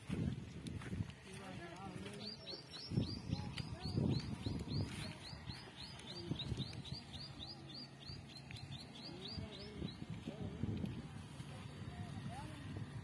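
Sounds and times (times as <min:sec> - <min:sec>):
goats chewing leaves: 0:00.0 - 0:02.8, 0:03.5 - 0:09.2, 0:09.8 - 0:13.0
bird chirping: 0:02.0 - 0:10.2.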